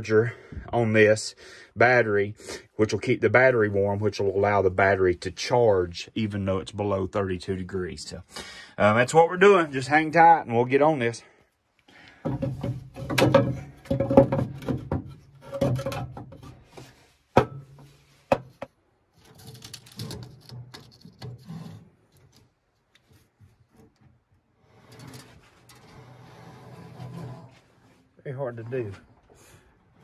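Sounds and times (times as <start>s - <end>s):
wood scraping against metal: 12.1s - 29.6s.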